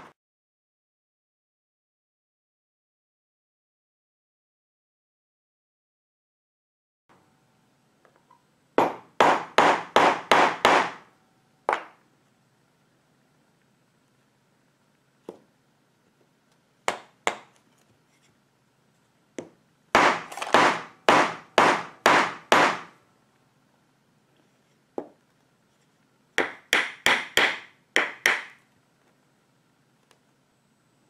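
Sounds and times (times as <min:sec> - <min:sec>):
hammer tapping pin: 0:26.4 - 0:28.6.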